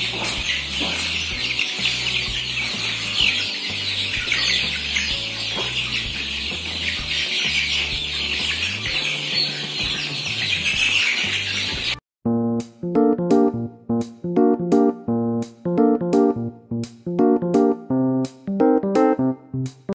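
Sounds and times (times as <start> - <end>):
chicks peeping and chirping: 0.0 - 12.0
background music with bass: 0.0 - 19.9.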